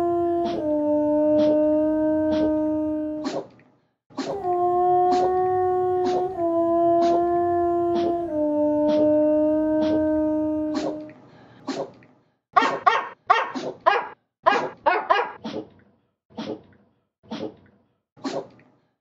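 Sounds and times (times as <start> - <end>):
howl-like dog note: 0.0 - 3.2, 4.2 - 11.1
short dog barks: 12.6 - 15.4.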